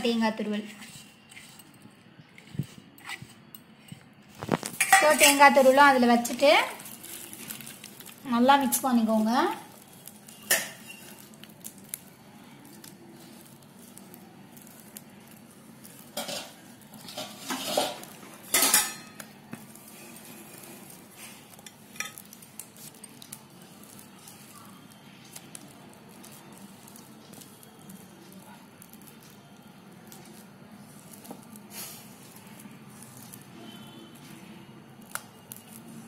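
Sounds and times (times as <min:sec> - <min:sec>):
stirring batter in steel bowl: 0:00.0 - 0:36.0
steel bowl clattering: 0:16.1 - 0:19.1.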